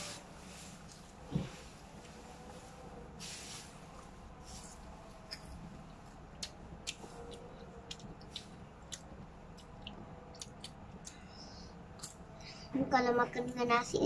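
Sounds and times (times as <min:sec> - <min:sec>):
snack crunching: 0:06.4 - 0:11.2.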